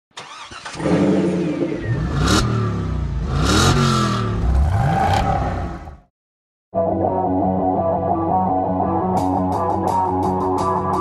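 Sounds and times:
vehicle engine revving: 0.5s - 6.1s.

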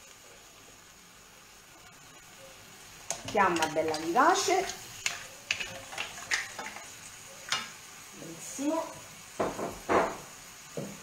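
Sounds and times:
food sizzling: 0.0s - 11.0s
wooden spoon scraping frying pan: 3.1s - 7.7s.

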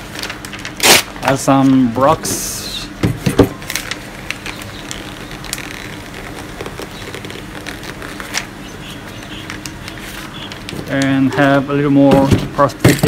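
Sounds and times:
paper rustling and crinkling: 0.0s - 1.8s, 3.5s - 11.6s
low background hum: 0.0s - 13.0s.

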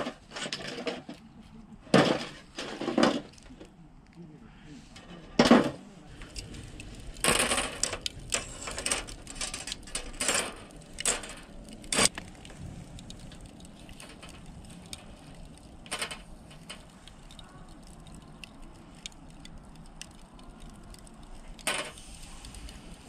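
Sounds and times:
metal grill clinking: 6.2s - 12.2s.

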